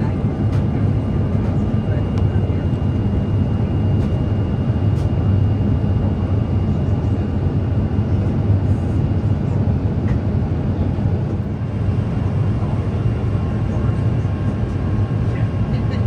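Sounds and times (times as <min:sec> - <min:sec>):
airliner cabin rumble: 0:00.0 - 0:16.0.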